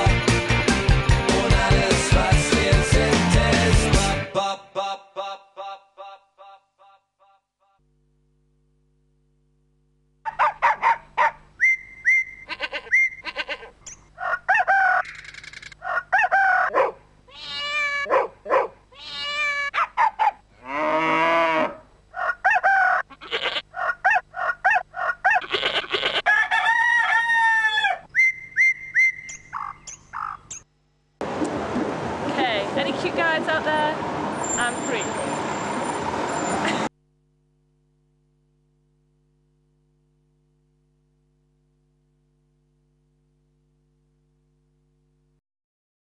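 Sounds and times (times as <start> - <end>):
animal-like calls bending in pitch: 20.6 - 26.3.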